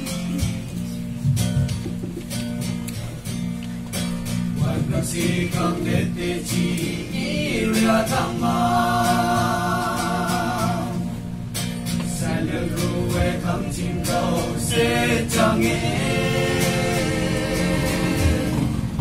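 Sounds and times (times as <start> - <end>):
young men singing together: 4.6 - 11.2, 12.0 - 19.0.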